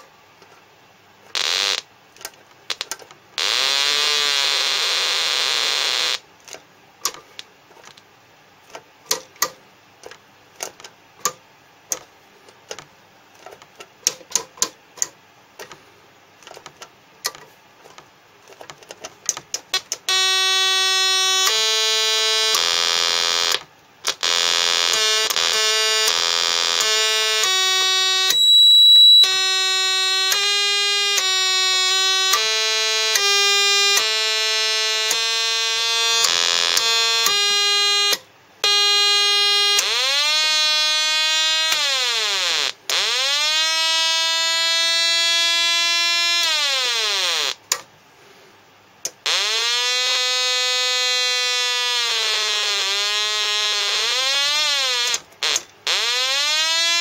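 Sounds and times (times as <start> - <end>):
buzzy electronic tones: 1.3 - 1.9, 3.4 - 6.2, 20.0 - 47.6, 49.2 - 57.0
shrill high beep: 28.3 - 29.3
warbling electronic siren tone: 49.3 - 57.0.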